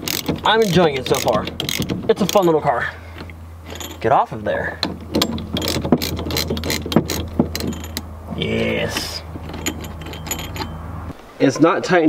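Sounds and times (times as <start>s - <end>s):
hand ratchet clicking: 0.0s - 4.1s, 5.1s - 8.0s
steady low hum: 0.0s - 12.0s.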